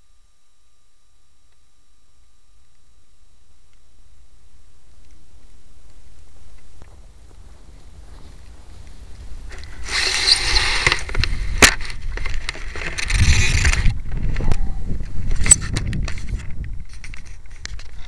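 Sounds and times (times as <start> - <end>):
handling rustling and scraping: 4.9 - 18.0.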